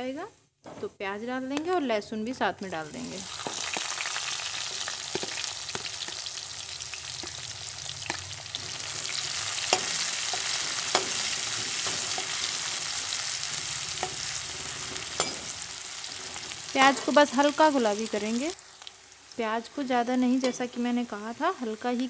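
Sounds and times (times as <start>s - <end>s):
onions sizzling in hot oil: 1.5s - 22.0s
metal spatula scraping pan: 8.1s - 17.2s.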